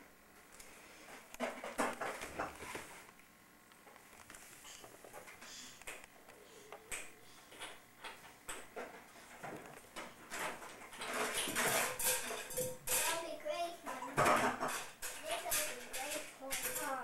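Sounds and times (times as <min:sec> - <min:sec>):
plastic toys clicking: 0:14.4 - 0:17.0.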